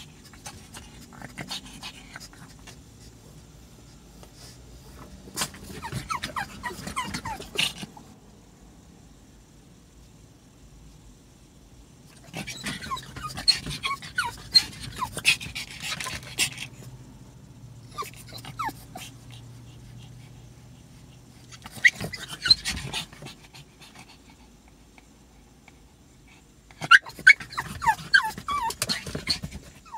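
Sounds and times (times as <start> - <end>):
dog whimpering and whining: 5.5 - 8.0, 12.2 - 16.6, 17.8 - 19.5, 21.6 - 23.4, 26.7 - 29.9
dog panting: 12.3 - 16.9, 18.0 - 29.9.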